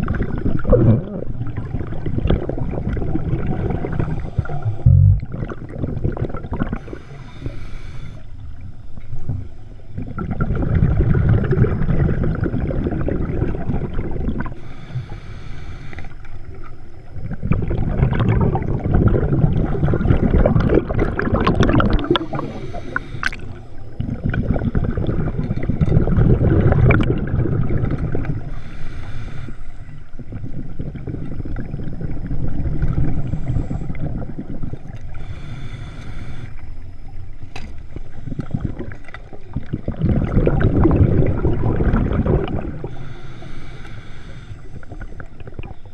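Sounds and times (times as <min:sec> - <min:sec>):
bubbling underwater exhalations: 0:00.0 - 0:07.5, 0:09.9 - 0:14.6, 0:17.1 - 0:28.6, 0:38.3 - 0:43.8
hissing regulator inhalations: 0:06.8 - 0:08.4, 0:14.5 - 0:16.4, 0:22.0 - 0:23.9, 0:28.4 - 0:30.1, 0:35.0 - 0:36.8, 0:42.6 - 0:45.2.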